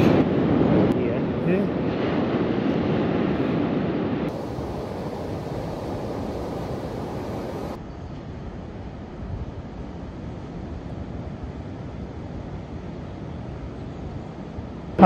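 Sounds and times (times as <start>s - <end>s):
wind buffeting microphone: 0.0s - 10.2s
ocean waves breaking: 1.6s - 7.8s.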